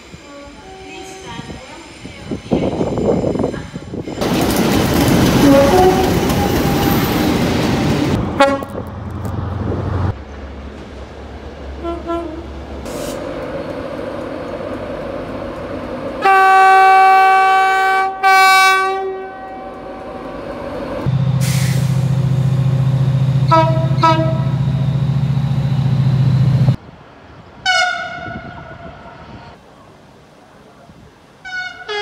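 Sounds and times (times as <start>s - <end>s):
train running through station: 0.0s - 32.0s
train horn blasts: 0.6s - 1.5s, 5.4s - 6.8s, 8.3s - 8.9s, 11.8s - 12.6s, 16.2s - 20.3s, 23.4s - 24.6s, 27.6s - 29.0s, 31.4s - 32.0s.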